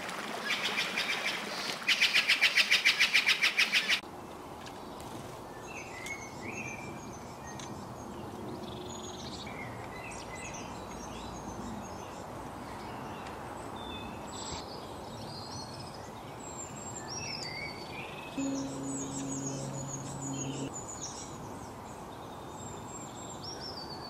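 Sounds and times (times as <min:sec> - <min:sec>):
outdoor background noise: 0:00.0 - 0:24.0
songbirds chirping: 0:04.7 - 0:23.8.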